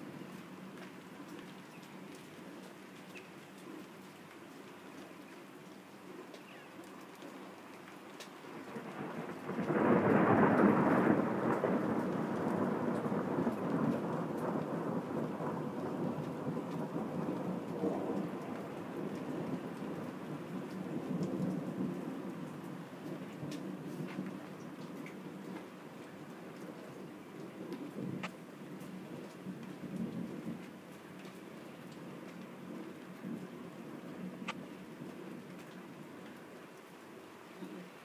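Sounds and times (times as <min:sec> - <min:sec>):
thunder rumbling: 0:08.8 - 0:25.6.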